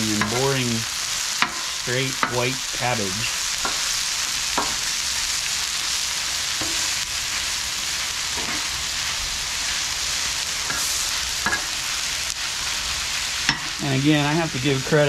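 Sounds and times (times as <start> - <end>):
food sizzling on a griddle: 0.0 - 15.0
metal spatulas scraping griddle: 6.6 - 7.0.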